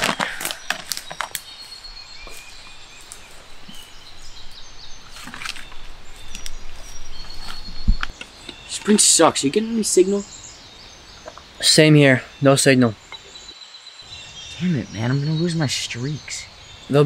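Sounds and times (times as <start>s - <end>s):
dry leaves rustling: 0.0s - 8.8s
birds calling: 0.0s - 17.0s.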